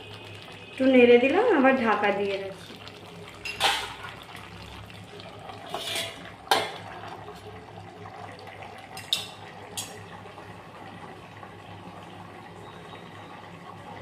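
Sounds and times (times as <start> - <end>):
food simmering hiss: 0.0 - 13.9
metal lid clanking on pan: 3.4 - 4.0, 5.7 - 6.9, 9.0 - 10.0.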